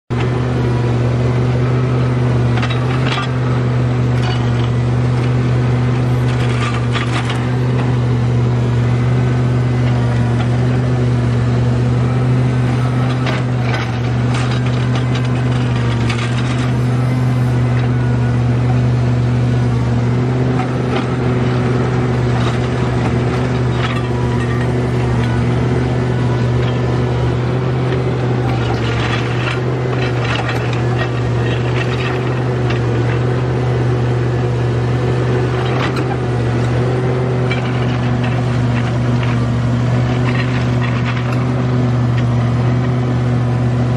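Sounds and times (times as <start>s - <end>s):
excavator diesel engine: 0.1s - 43.9s
rock scraping against steel: 20.4s - 33.2s.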